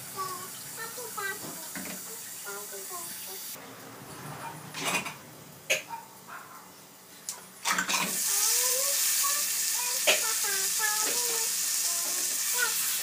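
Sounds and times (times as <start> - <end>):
fish sizzling in hot oil: 8.1 - 13.0.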